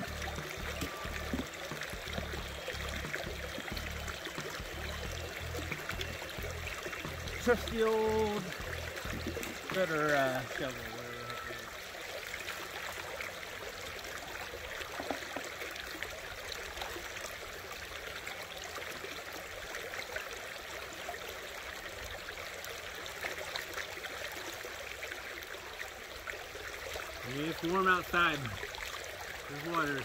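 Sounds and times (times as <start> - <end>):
creek water babbling: 0.0 - 30.0.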